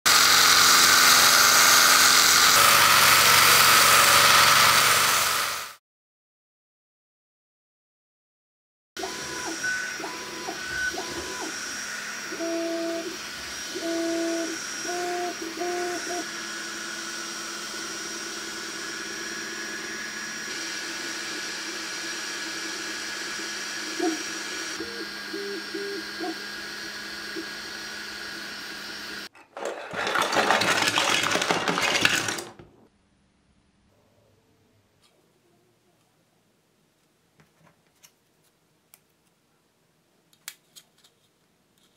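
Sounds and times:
stepper motor tones: 9.0s - 30.8s.

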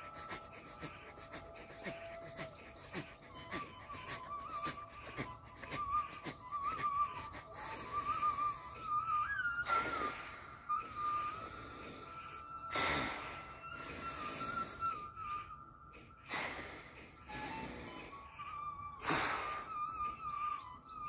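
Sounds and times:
thin wavering high tone: 7.1s - 21.0s
breathing through nostril: 9.6s - 15.2s, 15.9s - 18.3s, 19.0s - 19.8s.

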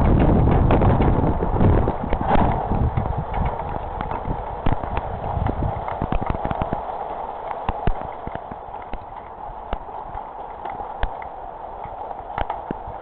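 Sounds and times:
hailstones clicking on hard surfaces: 0.0s - 13.0s
heavy rain hissing: 0.0s - 13.0s.

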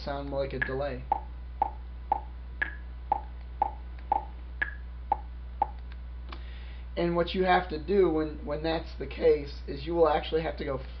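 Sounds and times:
low hum: 0.0s - 7.0s
metronome click track: 0.2s - 6.0s.

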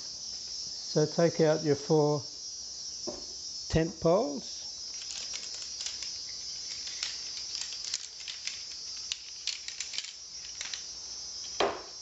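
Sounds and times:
crickets chirring: 0.0s - 12.0s
tent poles clinking together: 4.9s - 10.9s.

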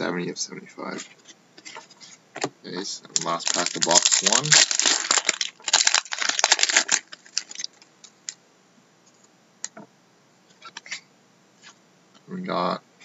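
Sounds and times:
foil wrapper tearing and crinkling: 3.2s - 7.9s
cards clicking and rustling: 3.2s - 8.2s.

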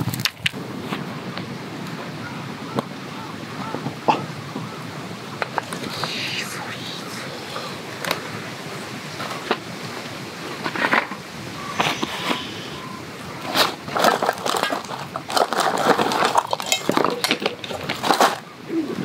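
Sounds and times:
rummaging in plastic crate: 13.4s - 18.4s.

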